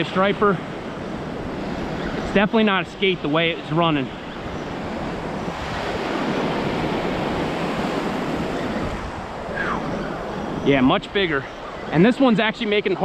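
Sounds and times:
ocean surf breaking: 0.0 - 13.0
wind on microphone: 4.0 - 12.0.

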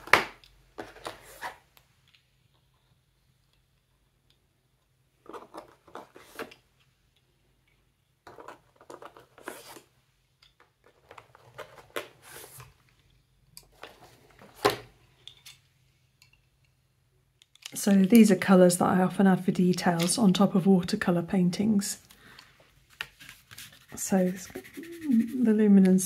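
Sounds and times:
pencil case rustling: 5.2 - 6.6, 8.3 - 9.9, 10.8 - 12.7, 22.8 - 25.4
wooden pencils clicking together: 17.4 - 18.3.

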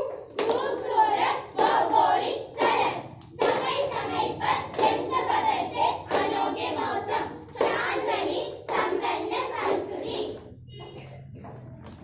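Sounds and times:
hand clapping: 0.0 - 0.8, 2.6 - 3.8, 4.7 - 5.2, 6.1 - 6.4, 7.6 - 9.0.

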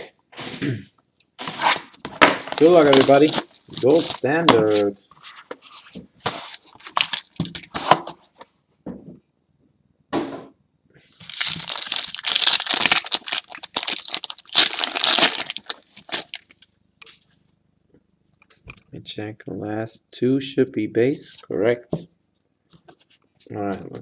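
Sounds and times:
packaging clicks and cracks: 2.4 - 4.3, 11.2 - 16.6
packaging crinkling and tearing: 2.4 - 5.4, 6.4 - 7.8, 11.2 - 16.7.

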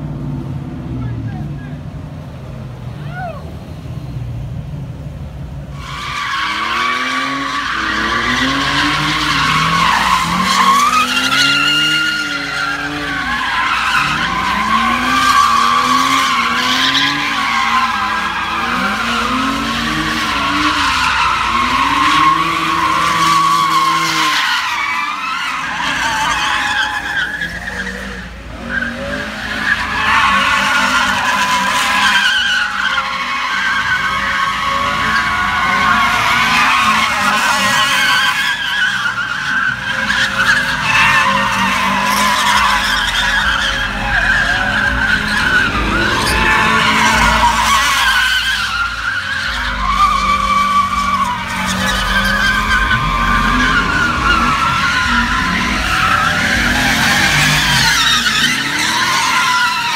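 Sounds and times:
tyres screeching: 5.7 - 59.9
truck engine revving: 39.7 - 59.9.

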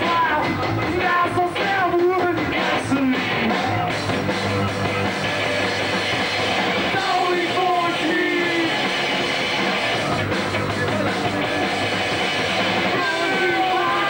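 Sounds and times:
rock band playing live: 0.0 - 14.0
person shouting vocals: 12.9 - 14.0.

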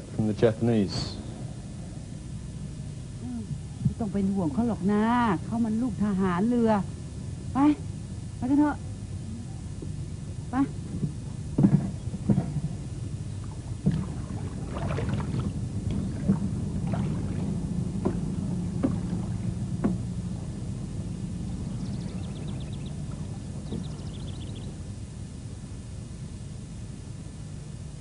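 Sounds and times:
low hum: 0.0 - 28.0
pole knocking and splashing water: 13.8 - 20.0.

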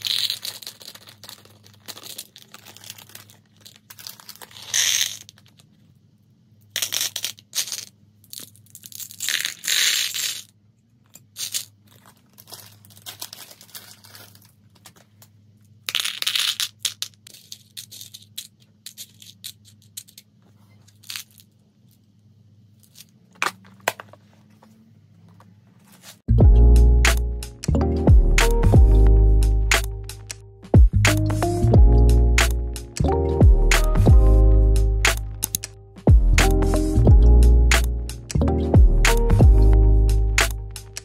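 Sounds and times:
beads clattering into plastic box: 0.0 - 5.8, 6.7 - 20.2
plastic bags crinkling: 0.0 - 5.8, 11.5 - 15.3
music: 26.3 - 41.0.

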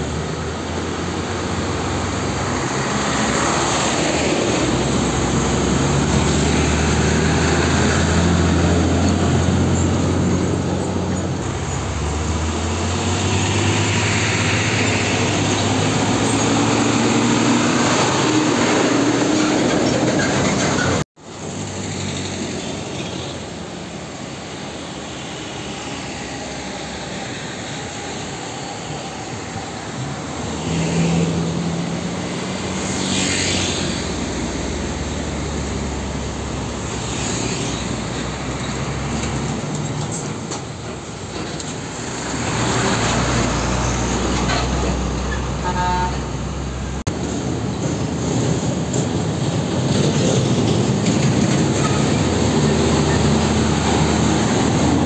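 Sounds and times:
road traffic: 0.0 - 55.0
truck engine rumble: 0.0 - 55.0.

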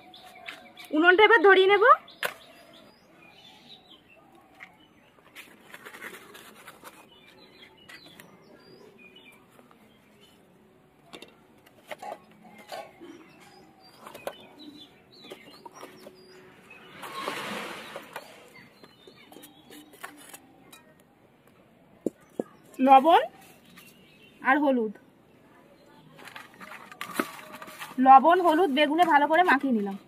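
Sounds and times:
newspaper and kindling rustling: 5.2 - 8.3, 16.8 - 20.4, 26.1 - 30.0
wood sticks pushed in rustling: 16.8 - 18.6.

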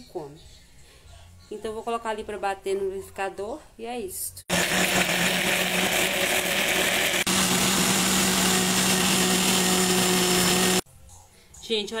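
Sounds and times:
electric blender motor running: 4.5 - 10.8.

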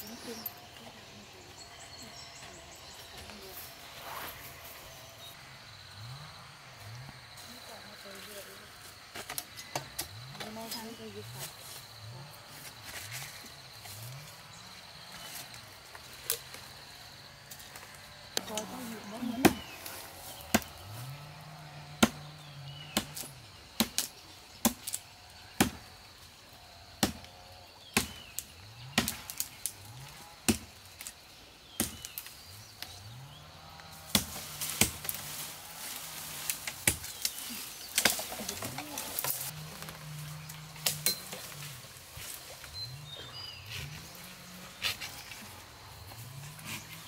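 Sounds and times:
blade chopping wood: 29.0 - 29.5, 34.1 - 35.2.

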